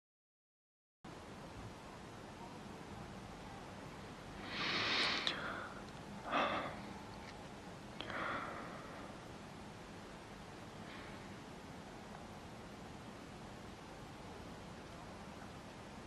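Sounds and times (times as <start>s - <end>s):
faint steady hiss: 1.1s - 16.0s
person breathing softly: 4.4s - 7.0s, 8.0s - 9.3s, 10.7s - 11.4s.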